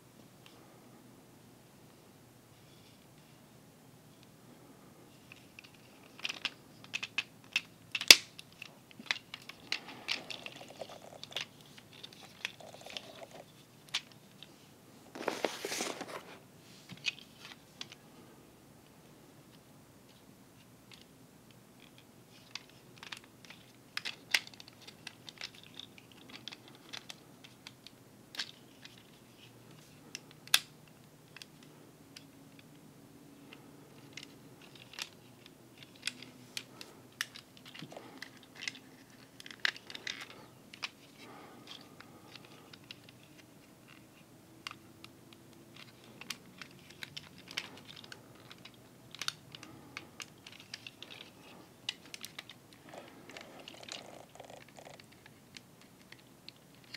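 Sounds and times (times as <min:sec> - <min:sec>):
plastic toy clicks and snaps: 0:06.1 - 0:10.6.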